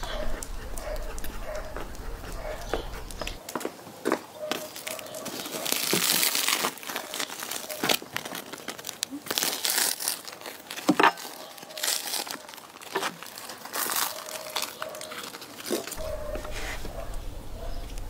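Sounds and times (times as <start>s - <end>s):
bread crust crackling as torn: 4.7s - 16.0s.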